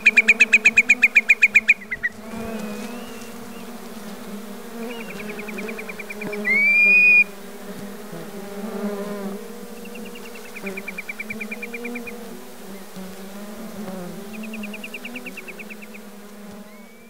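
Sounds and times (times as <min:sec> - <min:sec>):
swarming insects humming: 0:00.0 - 0:17.0
bird rapid high trill: 0:06.0 - 0:07.3
bird whistled note: 0:06.4 - 0:07.3, 0:16.7 - 0:17.0.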